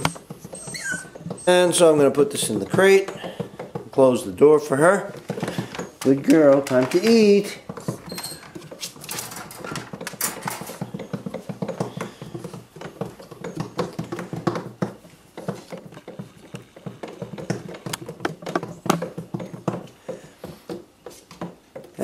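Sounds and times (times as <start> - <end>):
wire crate door rattling: 5.9 - 11.0.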